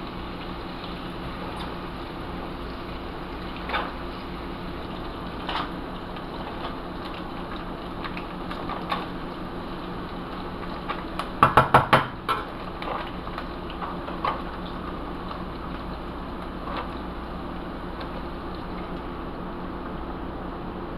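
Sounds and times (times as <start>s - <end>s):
steady low hum: 0.0s - 11.4s, 12.1s - 20.9s.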